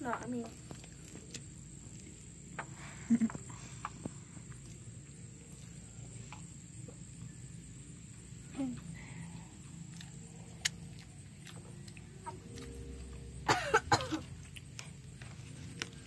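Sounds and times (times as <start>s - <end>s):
steady low hum: 0.0s - 16.0s
chewing clicks: 9.2s - 12.8s, 14.2s - 16.0s.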